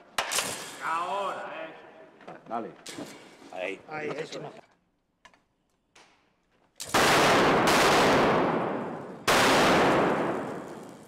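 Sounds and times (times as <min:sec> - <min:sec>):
flame blasts roaring: 0:09.6 - 0:11.0.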